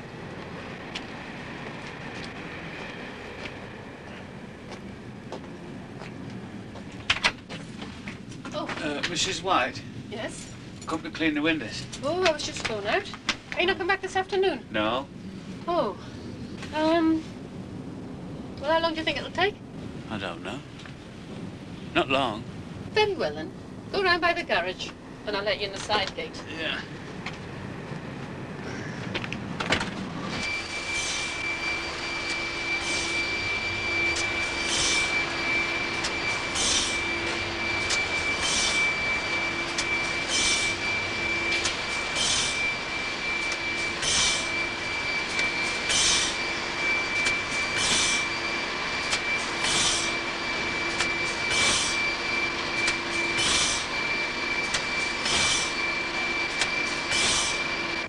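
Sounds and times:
machinery whining: 0:00.0 - 0:58.0
hissing pulse: 0:30.2 - 0:58.0.

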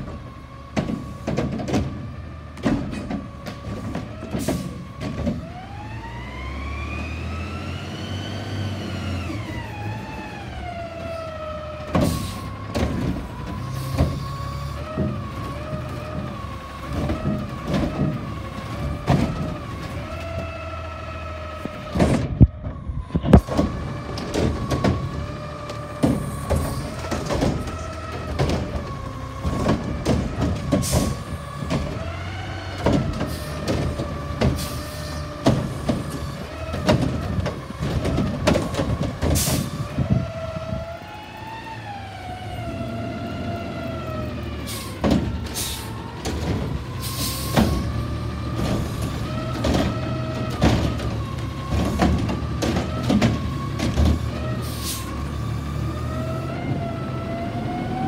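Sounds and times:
diesel engine revving: 0:00.0 - 0:58.0
metal clanks and bangs: 0:25.9 - 0:32.2, 0:44.9 - 0:54.4.

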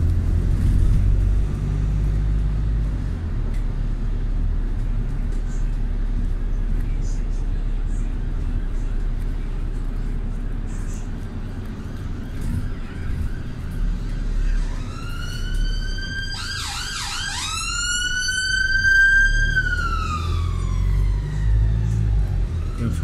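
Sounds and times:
vehicle engine rumble: 0:00.0 - 0:23.0
emergency siren: 0:12.2 - 0:23.0.

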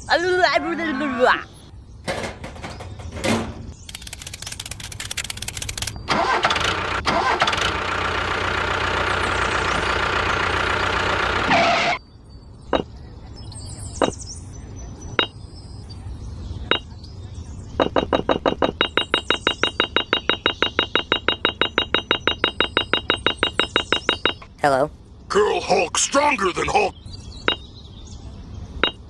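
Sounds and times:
sharp clicks: 0:03.8 - 0:06.0
engine cranking and running: 0:03.9 - 0:12.0.

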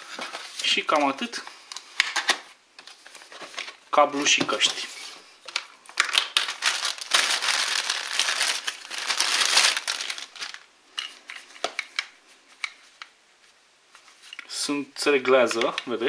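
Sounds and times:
plastic bag crinkling: 0:04.2 - 0:11.5.

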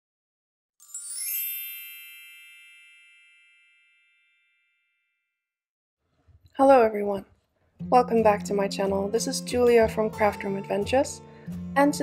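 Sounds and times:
sparkling bell-like chime: 0:00.8 - 0:05.2.

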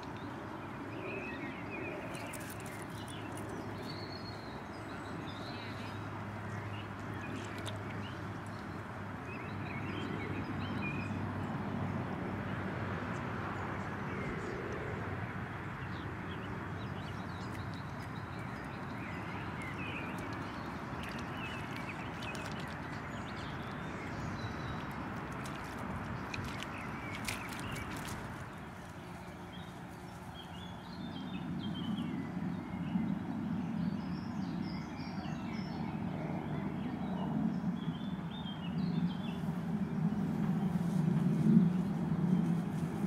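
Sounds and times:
puppy paws splashing in puddle: 0:00.0 - 0:11.0, 0:16.7 - 0:30.7
outdoor background noise: 0:00.0 - 0:43.0.

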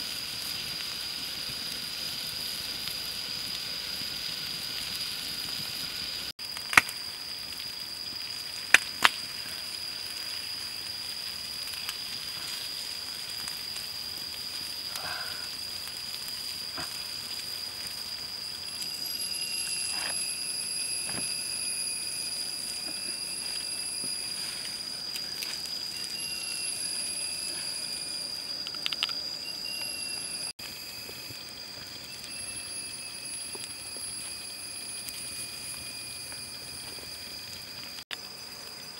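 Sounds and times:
food sizzling on hot stone: 0:00.0 - 0:38.9
high-pitched whine: 0:17.5 - 0:38.1.

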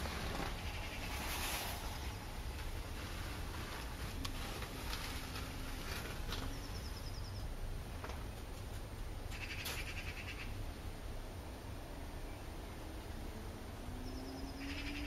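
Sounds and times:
low background rumble: 0:00.0 - 0:15.0
small bird chirping trills: 0:06.4 - 0:07.5, 0:14.0 - 0:15.0.

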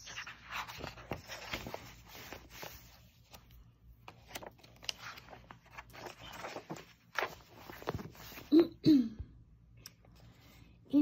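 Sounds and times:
book pages turning: 0:00.0 - 0:08.5.

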